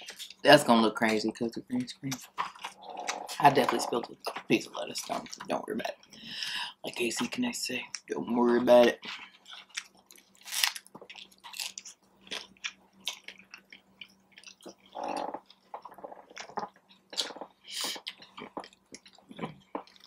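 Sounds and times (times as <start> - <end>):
crunchy taco chewing: 8.6 - 20.0.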